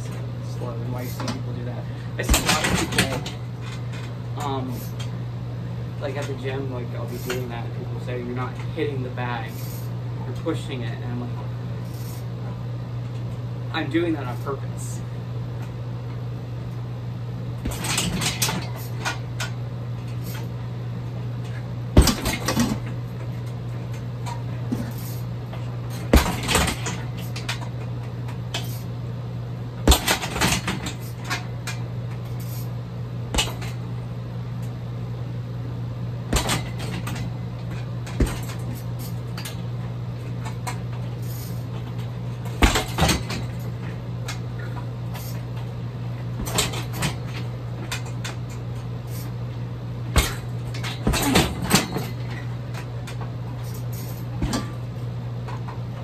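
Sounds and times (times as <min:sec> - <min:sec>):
steady low hum: 0:00.0 - 0:56.0
punches thudding on heavy bag: 0:02.2 - 0:03.3, 0:17.6 - 0:19.2, 0:21.9 - 0:23.1, 0:25.9 - 0:27.6, 0:29.8 - 0:31.3, 0:33.3 - 0:33.8, 0:36.3 - 0:37.4, 0:38.1 - 0:38.9, 0:42.5 - 0:43.9, 0:46.3 - 0:47.4, 0:50.1 - 0:52.4, 0:54.4 - 0:54.8.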